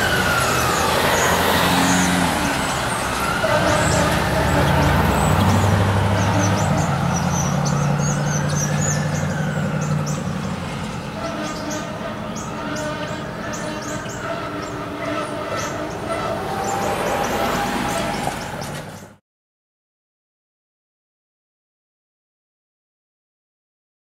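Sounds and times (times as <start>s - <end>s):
fire truck siren wailing: 0.0s - 19.1s
diesel engine hum: 0.0s - 19.2s.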